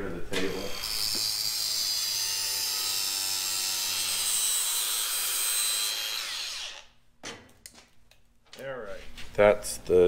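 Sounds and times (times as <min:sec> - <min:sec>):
angle grinder cutting metal: 0:00.4 - 0:06.9.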